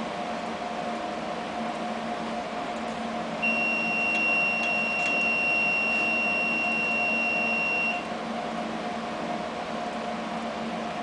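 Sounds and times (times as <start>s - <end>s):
droning hum: 0.0s - 11.0s
high-pitched electronic beep: 3.4s - 8.0s.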